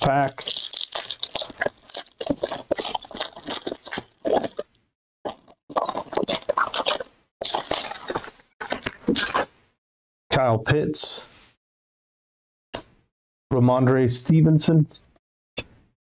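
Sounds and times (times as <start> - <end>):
foil wrapper crinkling: 0.0 - 4.6, 5.8 - 8.3.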